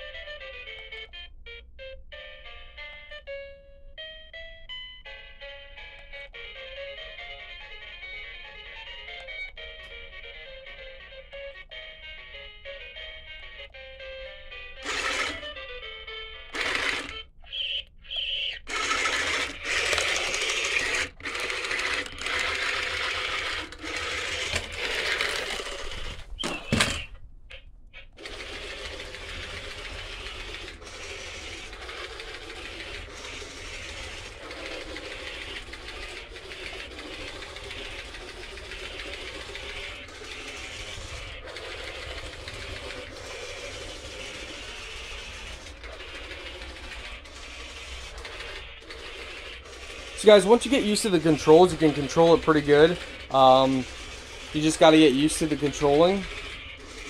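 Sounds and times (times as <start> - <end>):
toy leg mechanism whirring: 14.6 - 57.0
toy speaker sound: 14.8 - 15.6, 16.4 - 57.0.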